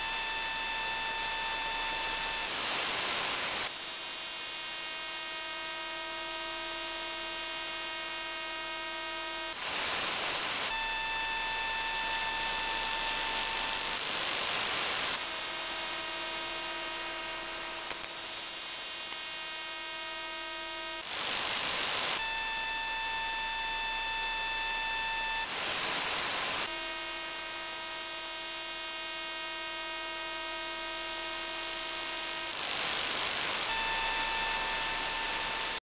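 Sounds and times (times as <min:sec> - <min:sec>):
harsh radio buzz: 0:00.0 - 0:02.8, 0:10.6 - 0:25.7, 0:26.4 - 0:35.8
radio hiss: 0:08.4 - 0:22.2, 0:25.0 - 0:35.8.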